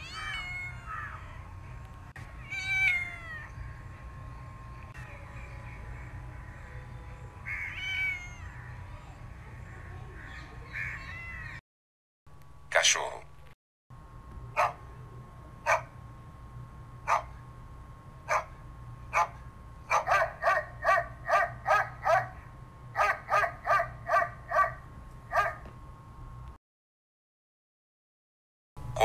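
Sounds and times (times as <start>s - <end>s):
dog barking: 14.6s - 14.8s, 15.6s - 15.9s, 17.1s - 17.4s, 18.3s - 25.7s.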